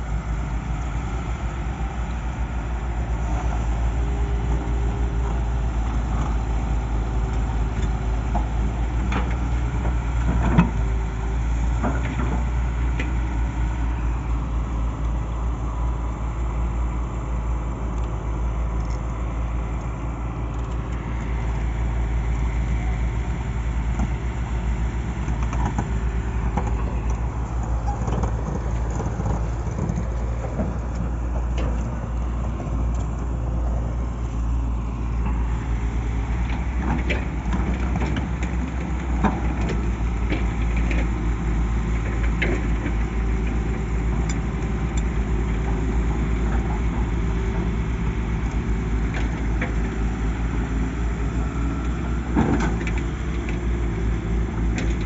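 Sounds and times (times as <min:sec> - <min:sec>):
excavator diesel engines humming: 0:00.0 - 0:55.0.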